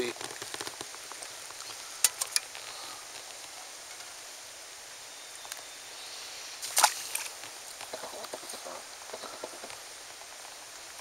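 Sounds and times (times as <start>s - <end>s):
faint outdoor hiss: 0.0s - 11.0s
sharp clicks and rustles: 0.1s - 4.2s.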